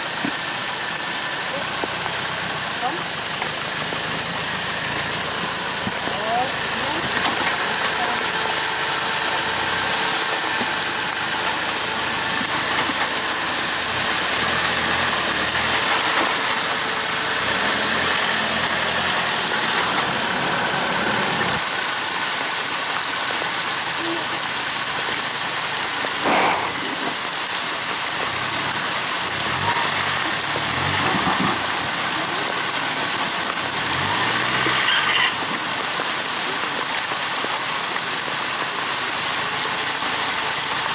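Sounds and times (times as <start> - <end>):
rain: 0.0 - 40.9
running water: 0.0 - 40.9
vehicle engine at low revs: 0.0 - 40.9.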